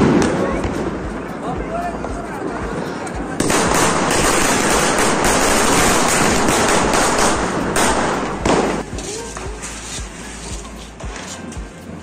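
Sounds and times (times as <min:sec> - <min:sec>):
firework hissing and crackling: 0:02.8 - 0:10.4.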